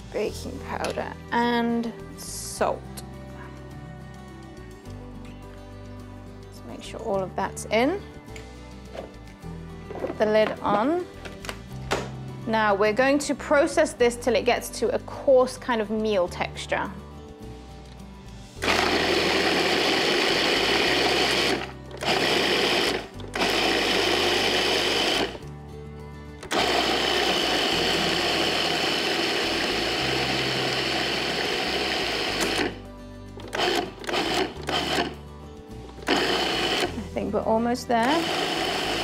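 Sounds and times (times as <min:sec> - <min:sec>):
food processor motor grinding: 0:18.6 - 0:25.4, 0:26.4 - 0:32.8, 0:33.4 - 0:35.2, 0:36.0 - 0:37.0, 0:38.0 - 0:39.0.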